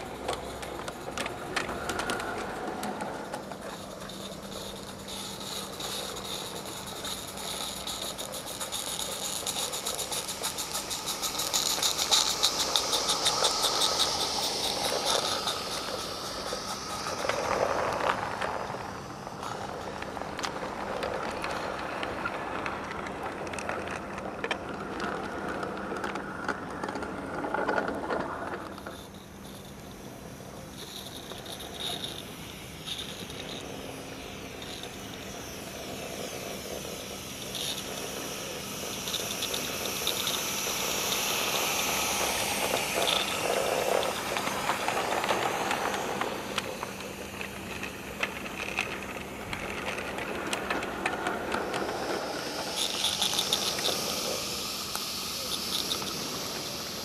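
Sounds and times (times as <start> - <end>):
small wheels rattling on rails: 0.0 - 57.0
steam hiss: 0.0 - 57.0.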